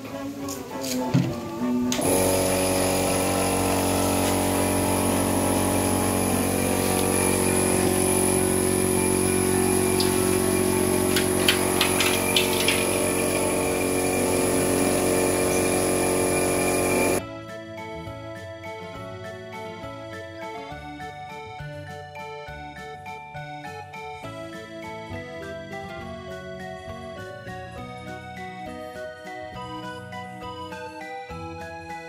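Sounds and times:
machine running steadily: 1.9 - 17.2.

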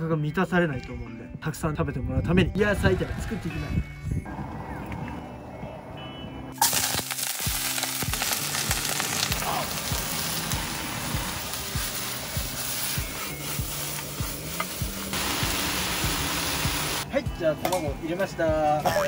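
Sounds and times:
vegetables sizzling in hot oil: 6.6 - 17.0.

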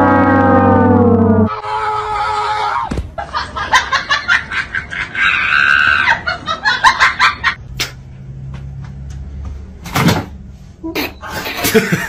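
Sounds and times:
person laughing hard: 3.2 - 7.6, 11.6 - 12.0.

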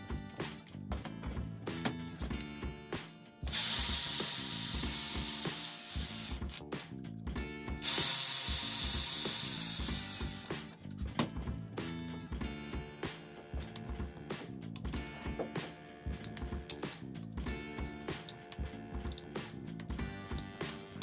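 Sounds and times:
background music: 0.0 - 21.0
ratchet wrench spinning: 3.5 - 6.7, 7.8 - 10.5.

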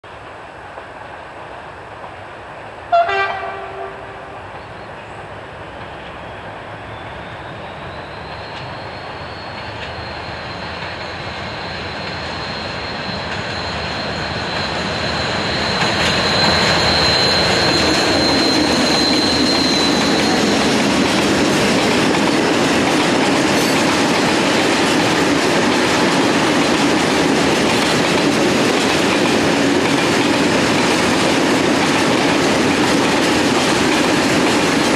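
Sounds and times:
diesel locomotives hauling train: 0.0 - 34.9
train horn blast: 2.9 - 4.4
high steady whine: 10.1 - 28.9.

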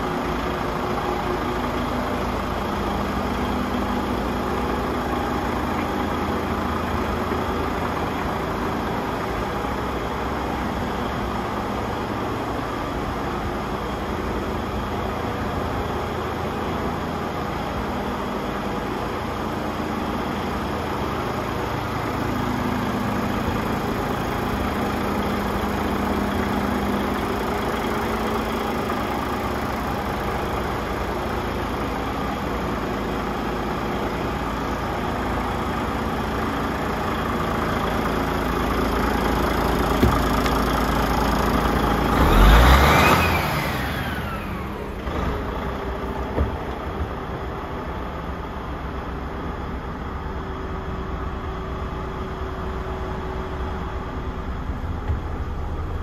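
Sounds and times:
diesel truck engine idling: 0.0 - 56.0
engine revving: 39.6 - 46.8
short knocks: 40.0 - 40.6.

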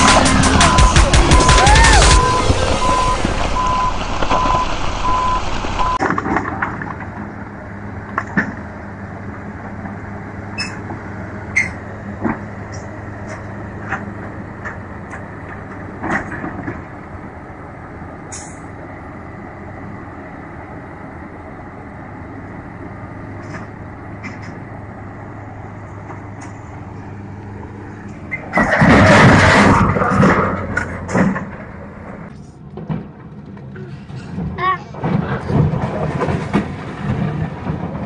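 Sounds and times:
loud burst of rough noise: 0.0 - 6.6
diesel engine running: 0.0 - 38.0.

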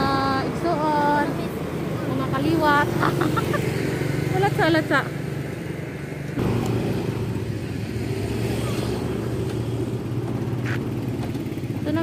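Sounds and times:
motorcycle engine running: 0.0 - 12.0
street traffic: 0.0 - 12.0.

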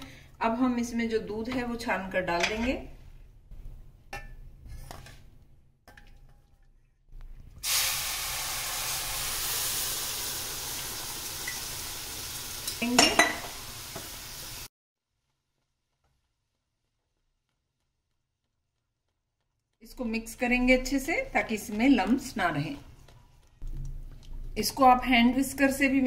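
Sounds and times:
loud sizzle in a hot pan: 7.6 - 14.7.

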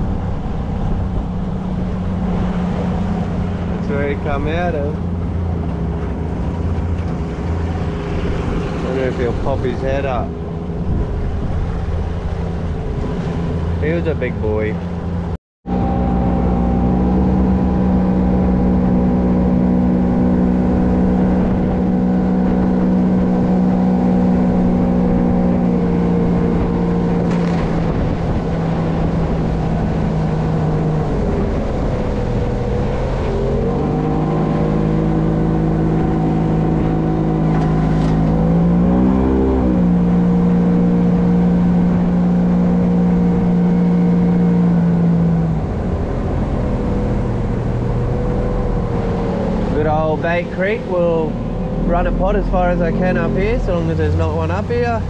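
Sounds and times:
outboard motor running: 0.0 - 55.0.

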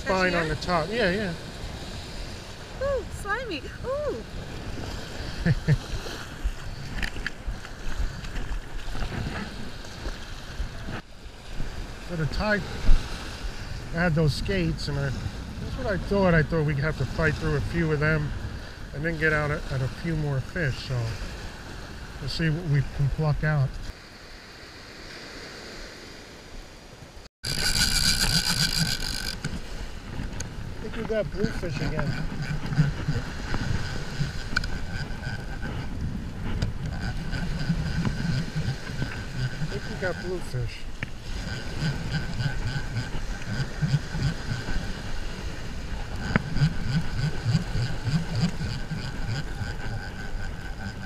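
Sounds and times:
gentle surf: 0.0 - 51.0
fishing reel cranking: 27.4 - 29.5, 31.4 - 35.8, 36.7 - 40.4, 41.3 - 44.8, 45.9 - 51.0
wind buffeting microphone: 27.4 - 51.0.

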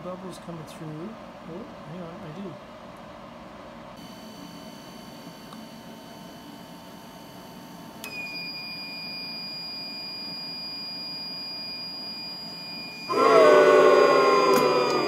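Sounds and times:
high-pitched alarm beep: 8.0 - 13.2.

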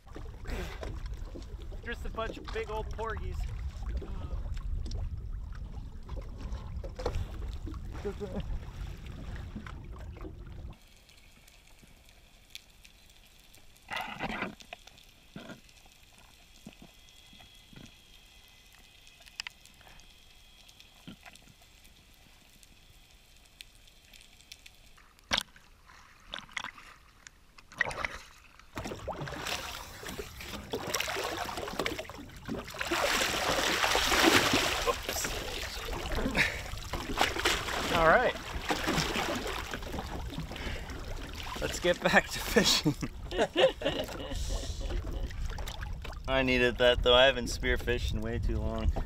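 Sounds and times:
bubbly gurgles: 0.0 - 11.0, 27.7 - 46.6
water splashing and sloshing: 0.0 - 49.0.

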